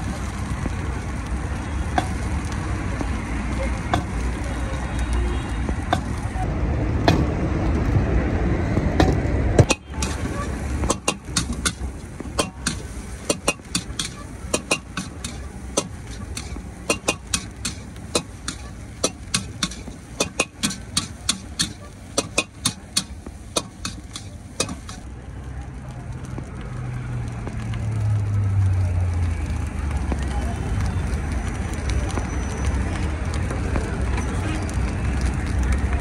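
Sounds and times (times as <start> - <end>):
street noise: 0.0 - 36.0
metal spatula scraping wok: 9.7 - 25.0.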